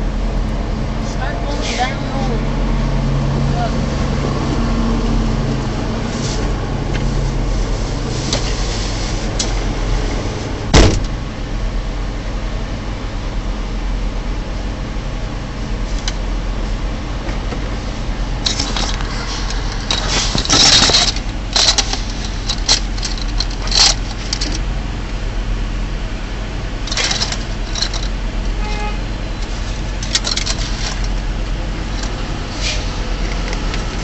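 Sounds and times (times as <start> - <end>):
diesel truck engine idling: 0.0 - 34.0
sharp clicks and rattles: 15.9 - 16.3, 17.2 - 25.2, 26.8 - 28.6, 29.2 - 32.4, 33.0 - 34.0.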